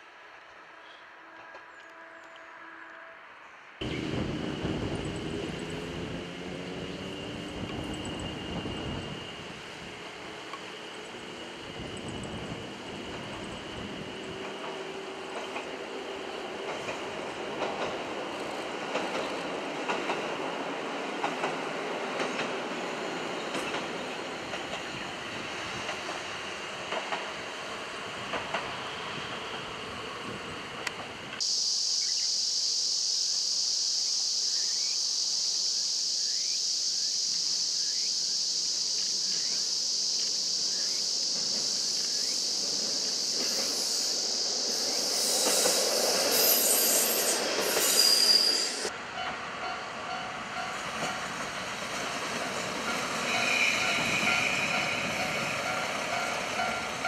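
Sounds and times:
railcar rumbling over bridge: 3.8s - 31.4s, 37.9s - 57.0s
steady high-pitched hiss: 28.7s - 57.0s.

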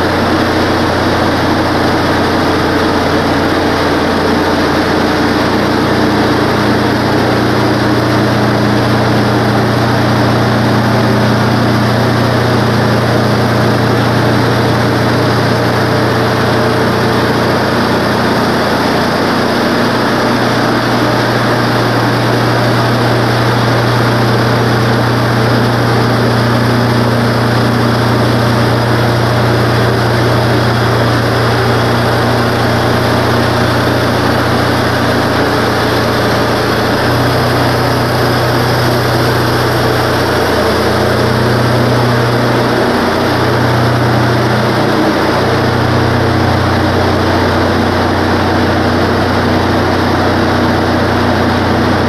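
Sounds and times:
sawmill engine under load: 0.0s - 52.0s.

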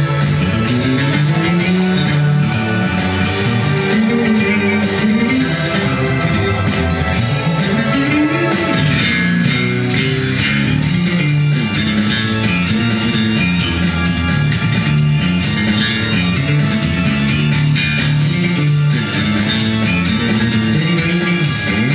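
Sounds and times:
electric bass guitar: 0.0s - 21.9s.

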